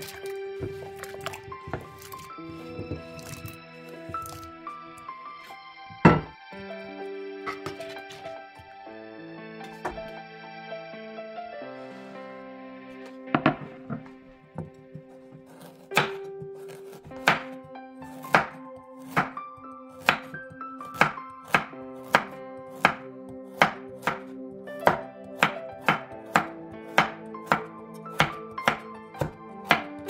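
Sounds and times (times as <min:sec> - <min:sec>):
knife hitting cutting board: 0:00.0 - 0:04.5, 0:06.0 - 0:06.4, 0:07.5 - 0:08.3, 0:09.6 - 0:10.0, 0:15.4 - 0:17.5
background music: 0:00.0 - 0:30.0.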